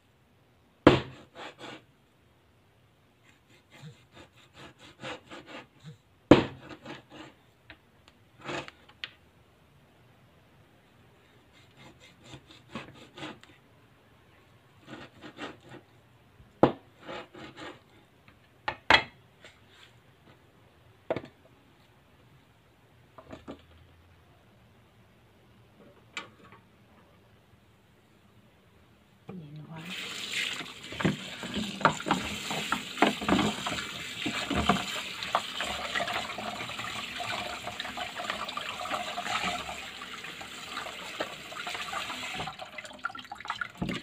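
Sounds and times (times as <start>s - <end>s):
cleaver sawing through bone: 3.4s - 5.7s.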